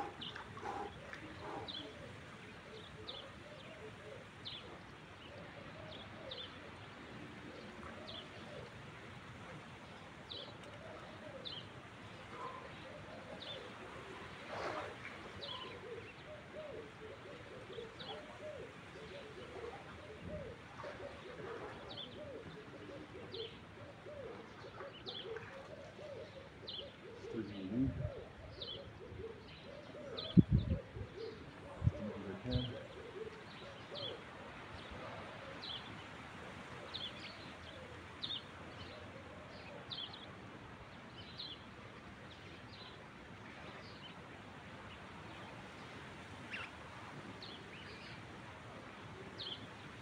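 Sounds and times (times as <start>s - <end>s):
doves cooing: 0.0s - 6.5s, 10.3s - 35.8s.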